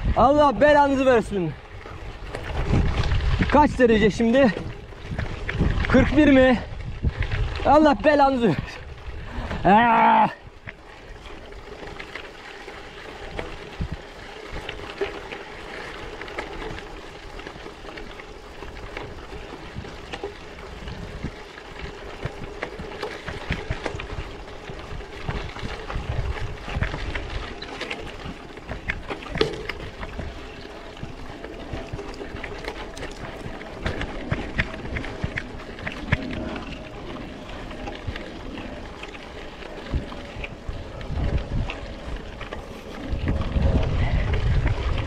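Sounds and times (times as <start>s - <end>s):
bike clicks and rattles: 0.0s - 45.0s
tyres crunching over gravel: 10.5s - 45.0s.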